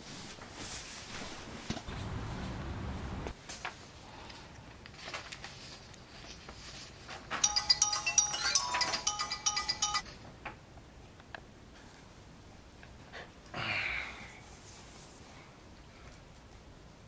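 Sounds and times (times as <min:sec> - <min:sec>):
mobile phone ringtone: 0:07.4 - 0:10.2.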